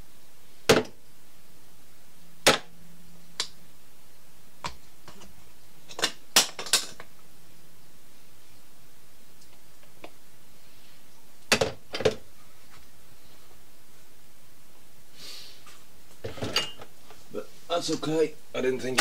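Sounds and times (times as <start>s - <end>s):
kitchen bowls and utensils clinking: 16.2s - 16.8s.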